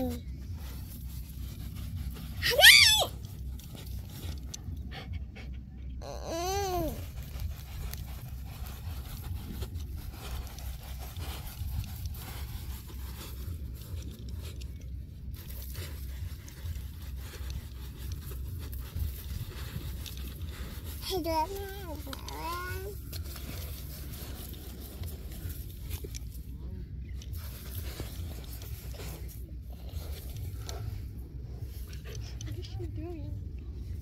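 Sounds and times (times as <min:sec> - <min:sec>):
paws scratching sand: 0:00.0 - 0:34.0
dog panting: 0:03.9 - 0:06.1
dog whining: 0:04.9 - 0:07.6.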